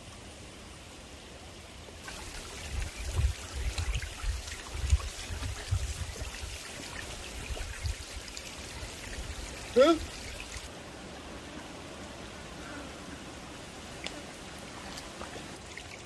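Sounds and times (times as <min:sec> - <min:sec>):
creek trickling: 0:02.0 - 0:10.7, 0:13.2 - 0:16.0
footsteps wading through water: 0:02.1 - 0:10.7.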